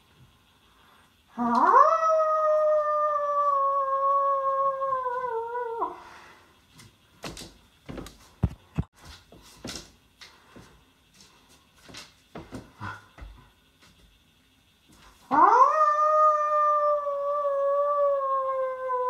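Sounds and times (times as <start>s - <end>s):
person howling like a wolf: 1.4s - 6.0s, 15.3s - 19.0s.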